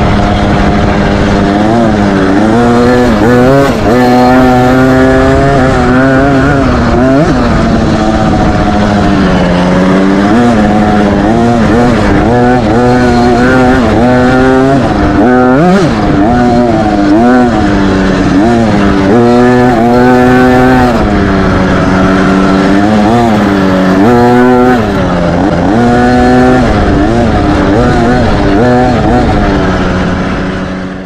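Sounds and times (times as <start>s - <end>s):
dirt bike engine revving: 0.0s - 31.0s.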